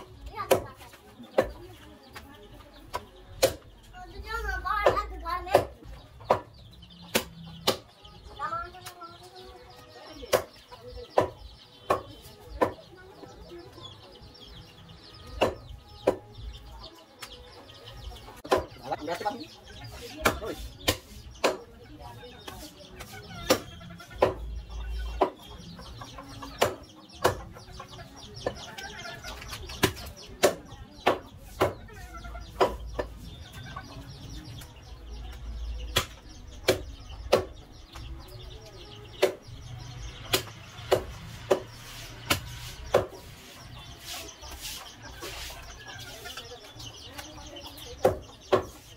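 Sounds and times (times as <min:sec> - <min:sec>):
cleaver chopping meat on wood: 0:01.4 - 0:01.6, 0:02.9 - 0:03.7, 0:04.8 - 0:07.9, 0:10.2 - 0:12.8, 0:15.3 - 0:16.4, 0:18.4 - 0:18.8, 0:20.2 - 0:21.7, 0:22.5 - 0:25.4, 0:26.6 - 0:27.6, 0:29.8 - 0:31.9, 0:32.5 - 0:33.1, 0:35.9 - 0:37.6, 0:39.2 - 0:39.6, 0:40.2 - 0:43.3, 0:48.0 - 0:48.8.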